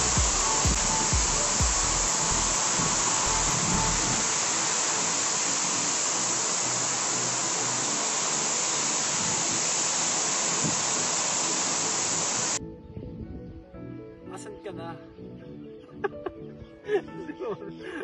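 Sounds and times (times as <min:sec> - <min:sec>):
waterfall rushing: 0:00.0 - 0:12.6.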